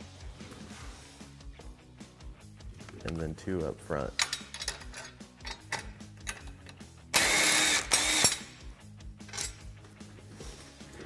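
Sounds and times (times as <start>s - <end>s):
cordless power tool whirring: 7.2s - 8.4s.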